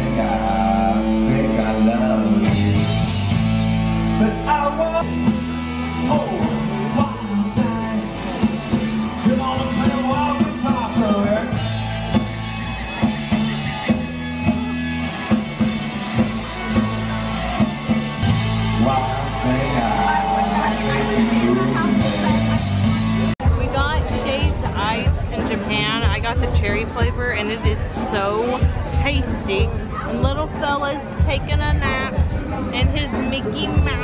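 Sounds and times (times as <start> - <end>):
rock band playing: 0.0 - 34.0
lead singer singing: 4.1 - 11.7.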